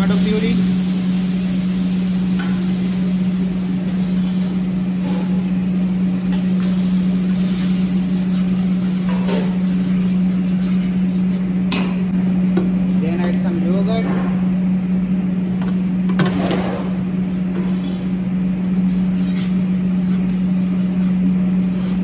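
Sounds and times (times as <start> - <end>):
machine hum with hiss: 0.0 - 22.0.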